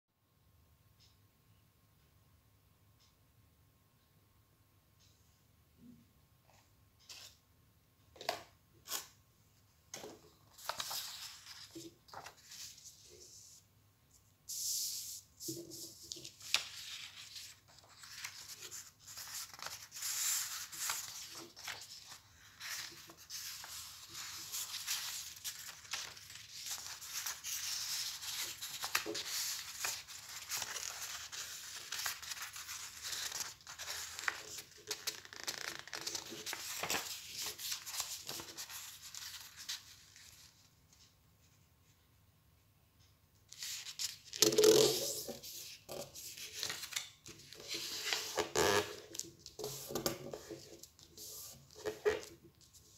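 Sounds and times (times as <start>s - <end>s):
paper rustling and folding: 9.9s - 13.6s, 14.6s - 41.5s, 43.5s - 52.9s.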